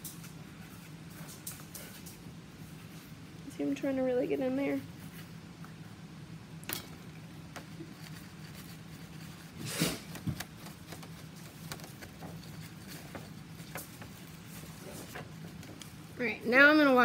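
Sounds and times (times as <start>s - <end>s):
steady low hum: 0.0s - 17.0s
paintbrush brushing cardboard: 7.6s - 17.0s.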